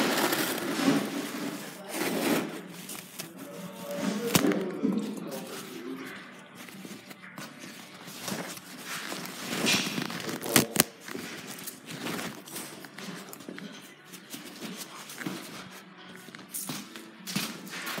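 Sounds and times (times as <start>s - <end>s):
rustling handling noise: 0.0s - 18.0s.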